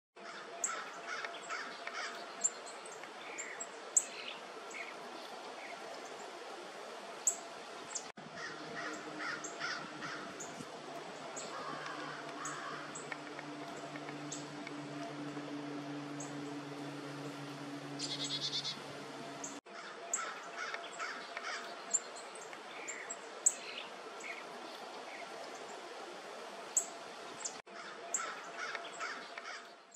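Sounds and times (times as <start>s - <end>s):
wild birds calling: 0.2s - 29.9s
low hum: 8.2s - 19.6s.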